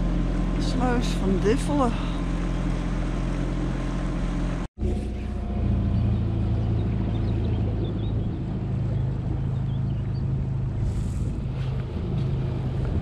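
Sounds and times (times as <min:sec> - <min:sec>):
motorboat engine droning: 0:00.0 - 0:13.0.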